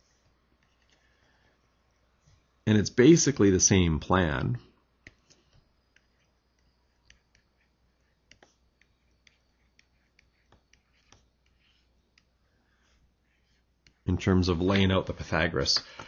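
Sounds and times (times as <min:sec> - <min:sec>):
stylus tapping on tablet screen: 0:08.2 - 0:12.3.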